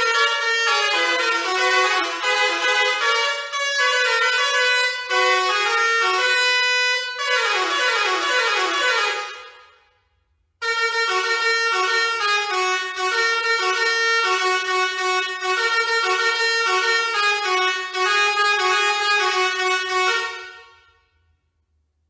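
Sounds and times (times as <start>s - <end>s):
musical air horn melody: 0.0s - 21.4s.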